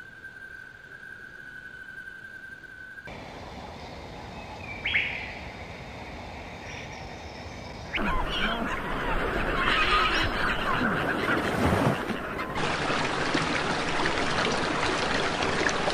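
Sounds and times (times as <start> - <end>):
seabird colony calling: 7.9 - 13.0.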